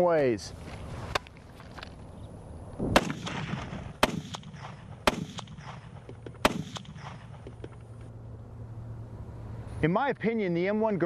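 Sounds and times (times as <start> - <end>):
rifle shots with echo: 2.9 - 7.5.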